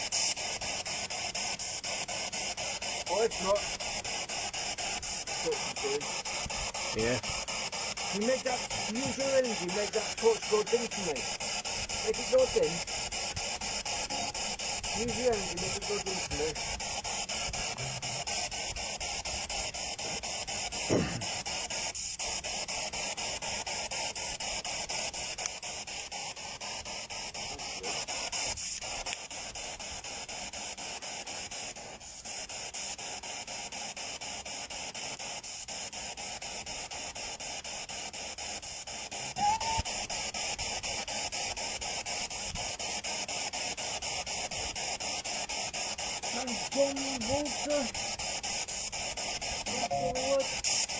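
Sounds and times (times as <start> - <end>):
choppy radio static: 3.0 - 3.8, 4.9 - 7.3, 8.0 - 12.9, 13.6 - 18.4, 46.3 - 48.0, 49.4 - 50.9.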